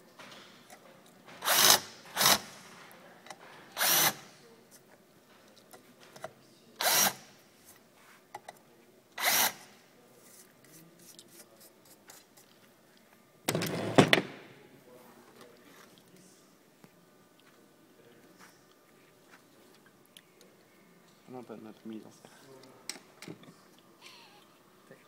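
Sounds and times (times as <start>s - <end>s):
power drill cutting into metal: 1.4s - 2.5s, 3.8s - 4.2s, 6.8s - 7.2s, 9.2s - 9.6s.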